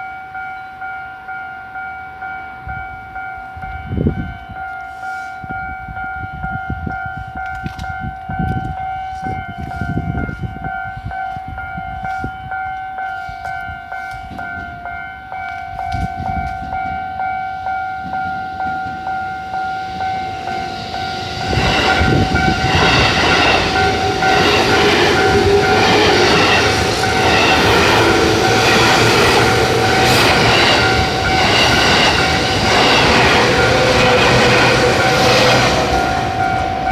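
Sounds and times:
level crossing bell ringing: 0.0 - 36.9
train wheels clattering over rails: 20.5 - 36.9.

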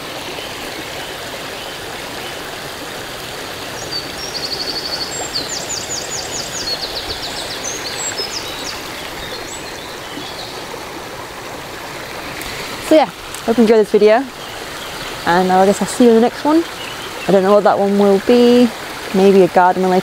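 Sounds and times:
brook bubbling: 0.0 - 20.0
wren trilling song: 3.6 - 10.7, 12.4 - 19.3.

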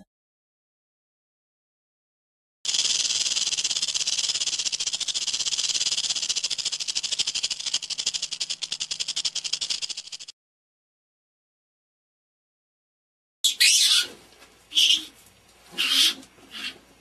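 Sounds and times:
rattlesnake tail rattle buzzing: 2.6 - 10.3.

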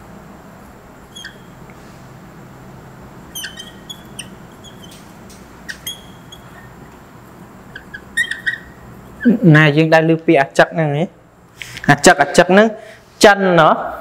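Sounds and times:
steady low hum: 0.0 - 14.0
marker squeaking on whiteboard: 1.0 - 1.7, 3.2 - 6.9, 7.6 - 9.5.

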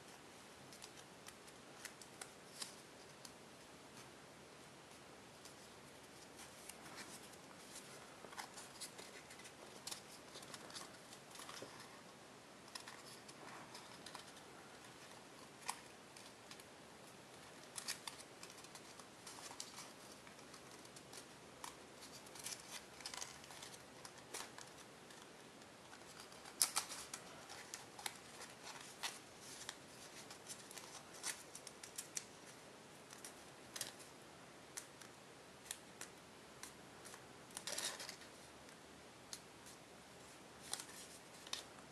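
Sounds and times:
foil paper crinkling and clicking: 25.9 - 32.4.

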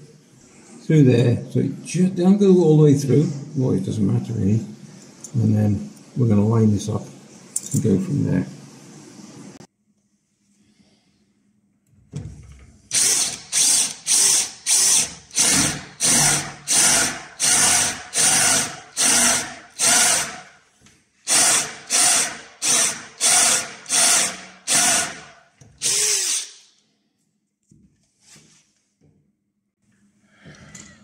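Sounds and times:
power drill boring through panel: 12.9 - 20.4, 21.3 - 25.2, 25.8 - 26.6.

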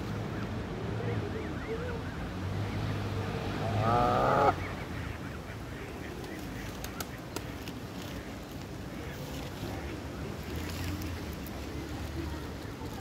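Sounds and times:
goose call: 3.6 - 4.6
goslings peeping: 3.7 - 5.9.

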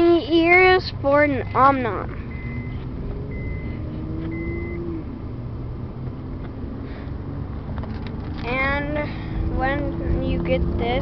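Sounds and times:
engine and road rumble: 0.0 - 11.0
electronic chime beeping: 2.3 - 4.9.

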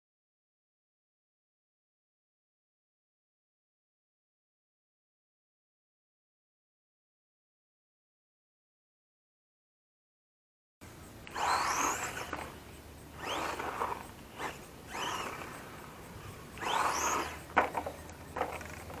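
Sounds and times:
electric motor whine: 10.8 - 19.0.

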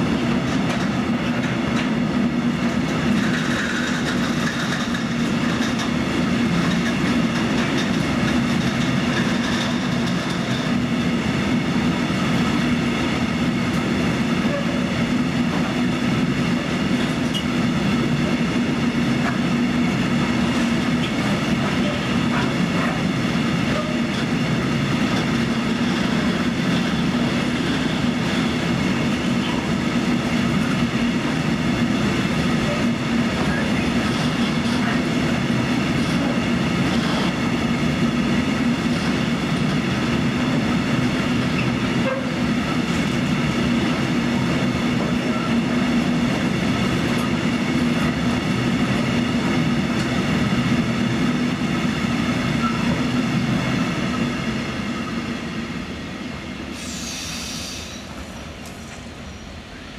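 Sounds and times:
steel wheels rumbling on rails: 0.0 - 59.9
clatter over rail joints: 0.4 - 2.0, 2.6 - 10.9, 19.2 - 29.8, 32.1 - 37.4.

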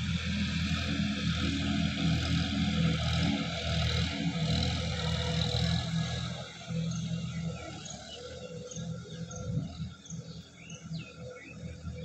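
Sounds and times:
tractor diesel engine under load: 0.0 - 9.0
bird chirping: 6.9 - 12.0.

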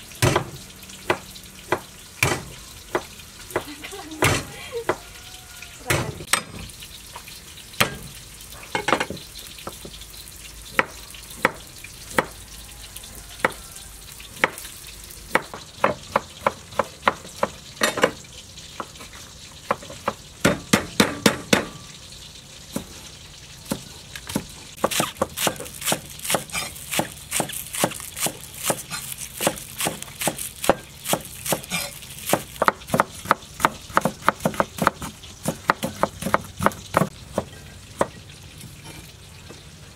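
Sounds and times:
knives chopping on wooden boards: 0.2 - 5.0, 10.7 - 12.4, 15.3 - 18.2, 19.6 - 21.8, 23.6 - 38.2.

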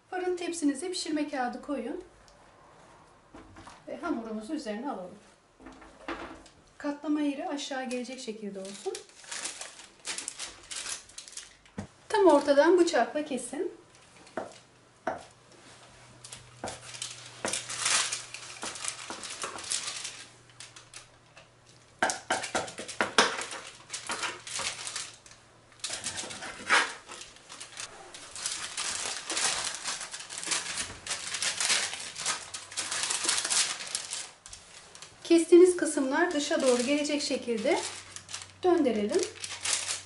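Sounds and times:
baking paper crinkling: 7.7 - 13.0, 15.6 - 40.0.

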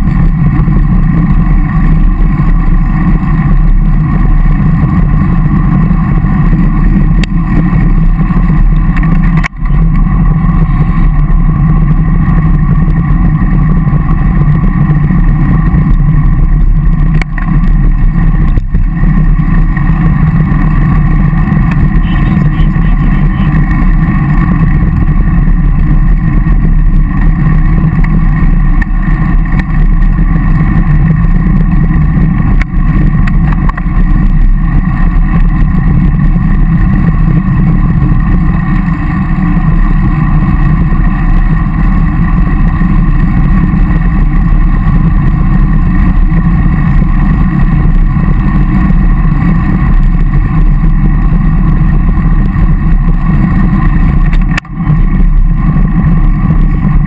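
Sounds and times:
road rumble: 0.0 - 57.0.

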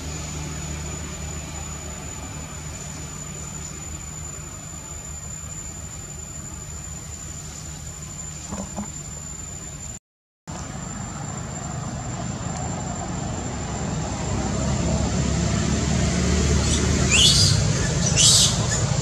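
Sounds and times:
baby monkey screaming: 16.6 - 19.0.

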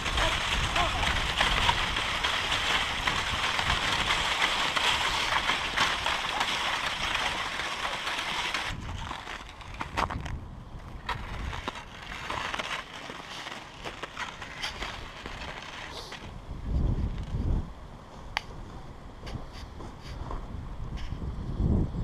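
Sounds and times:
crunching snow: 0.0 - 16.4
sled runners scraping on snow: 0.0 - 16.4.

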